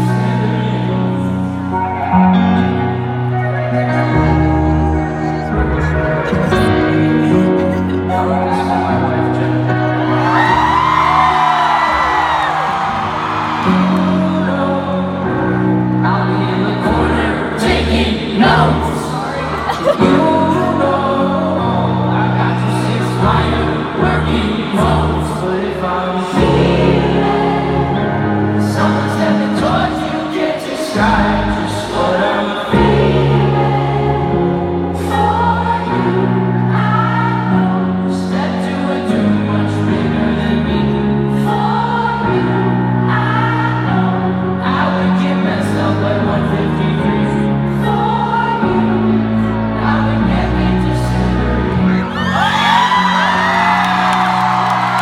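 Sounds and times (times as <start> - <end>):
crowd singing along: 0.0 - 55.0
keyboard chords: 0.0 - 55.0
crowd whooping and cheering: 8.2 - 14.6, 51.9 - 55.0.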